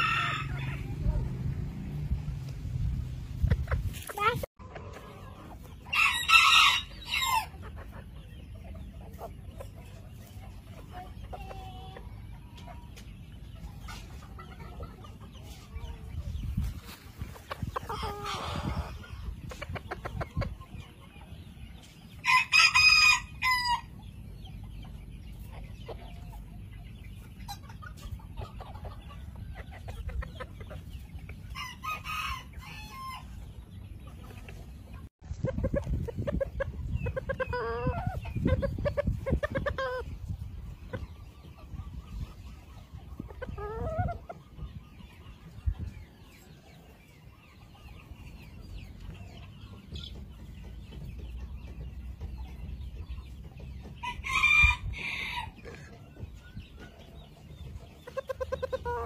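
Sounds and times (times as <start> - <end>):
rooster crowing: 0.0 - 0.9
rooster clucking: 2.9 - 10.0, 17.2 - 20.8, 34.2 - 40.2, 58.0 - 59.0.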